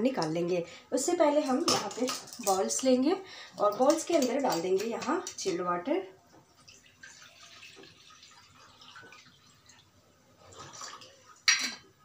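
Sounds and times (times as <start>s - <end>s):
water pouring into a glass bowl: 6.6s - 11.5s.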